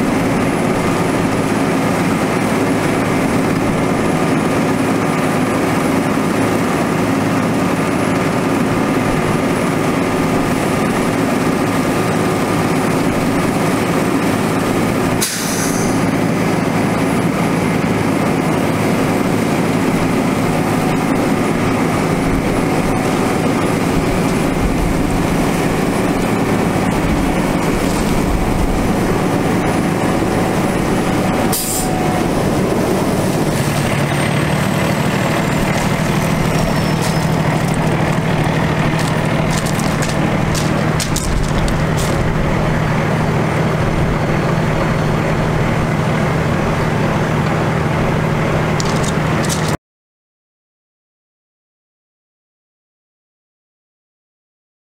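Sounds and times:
diesel engine running: 0.0 - 49.8
water jet hissing: 15.2 - 16.0, 28.8 - 34.1.

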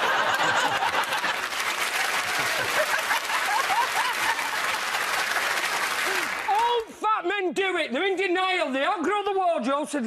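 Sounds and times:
audience laughter: 0.0 - 1.6, 2.2 - 4.8
audience applauding: 0.0 - 6.8.

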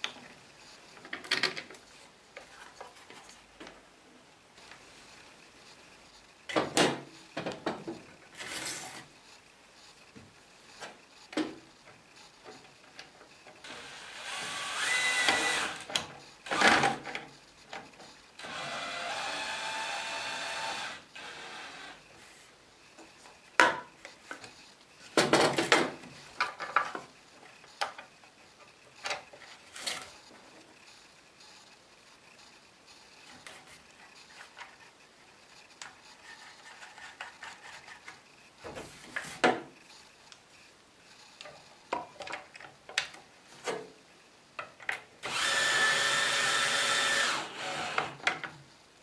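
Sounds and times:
cordless drill whining: 13.6 - 15.8, 18.4 - 22.0, 45.2 - 48.2.

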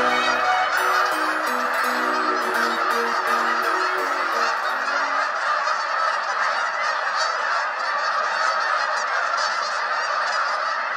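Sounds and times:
geese honking in flight: 0.0 - 10.9.

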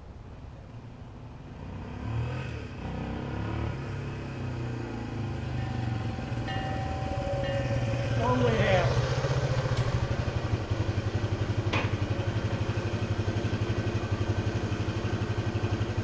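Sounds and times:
motorcycle engine running: 3.1 - 16.0.

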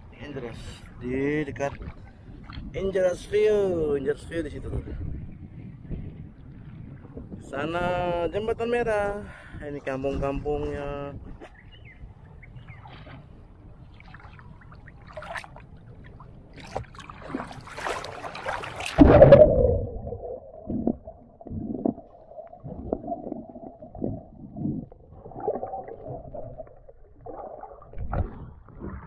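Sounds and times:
water splashing around swimmer: 12.7 - 29.0
dull underwater thumps: 16.5 - 29.0
loud splash: 16.6 - 24.2
muffled underwater gurgling: 19.0 - 29.0.

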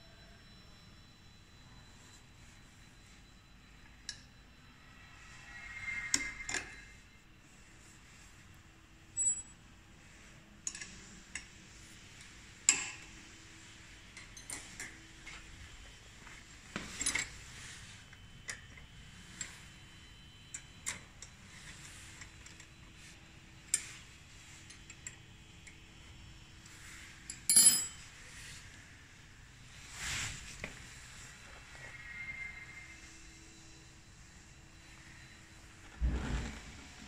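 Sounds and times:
hex key clinking on metal: 27.3 - 28.0.

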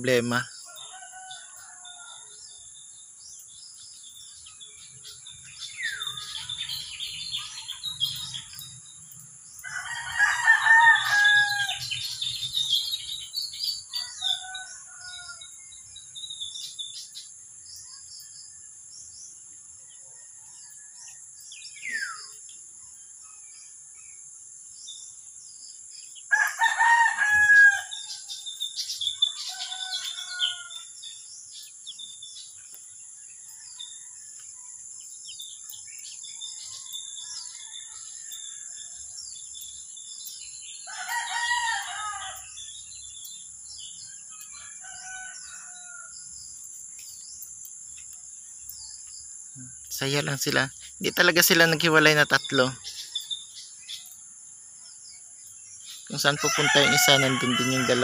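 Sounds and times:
small birds chirping: 0.0 - 58.0
rooster crowing: 0.6 - 2.5, 9.5 - 12.3, 13.9 - 15.6, 26.3 - 31.1, 40.7 - 42.7, 43.8 - 46.2, 56.1 - 58.0.

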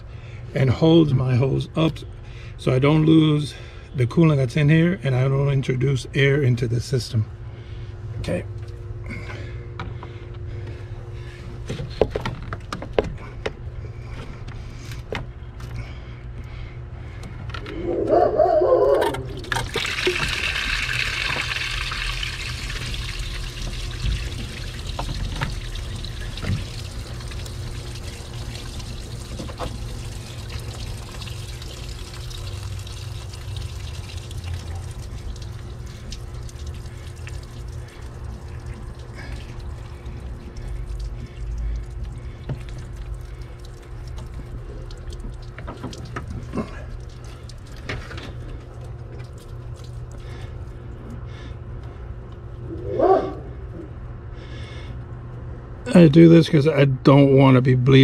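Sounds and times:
coolant pouring and trickling: 18.9 - 52.4.

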